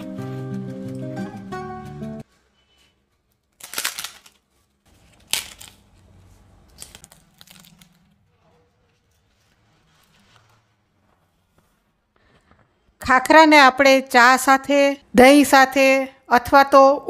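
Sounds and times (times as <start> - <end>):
crisp flatbread snapping: 3.5 - 4.4, 5.0 - 6.0, 6.7 - 8.0.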